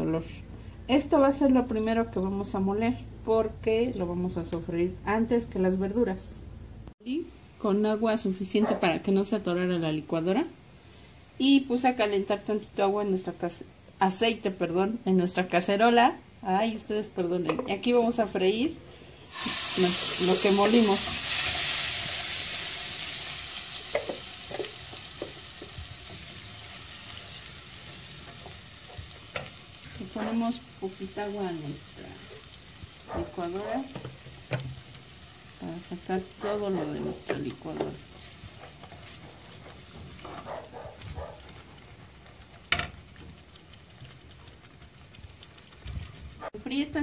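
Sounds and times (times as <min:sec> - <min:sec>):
paste sizzling in hot oil: 0:19.0 - 0:46.4
wooden spoon scraping and stirring: 0:23.8 - 0:31.5, 0:36.4 - 0:46.5.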